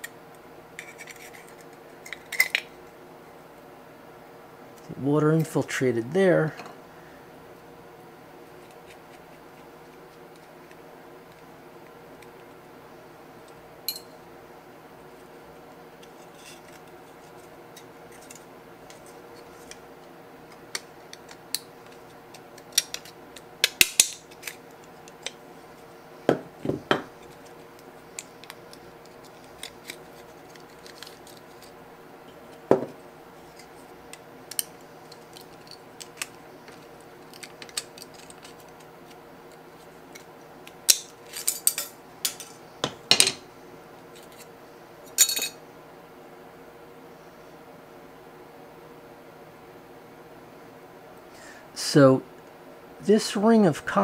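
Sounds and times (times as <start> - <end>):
faint steady hum: 0.0 - 54.0
small metal clicks and scrapes: 16.0 - 19.8, 27.2 - 31.8, 33.5 - 40.3.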